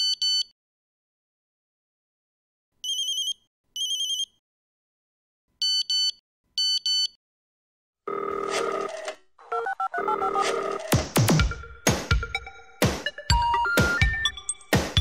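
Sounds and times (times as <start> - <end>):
electronic music: 10.0 - 15.0.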